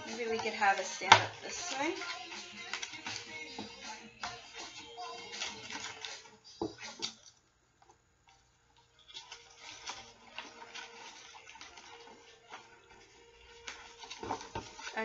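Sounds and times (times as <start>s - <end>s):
cardboard tubes tapping plastic bottle: 0.0s - 2.0s.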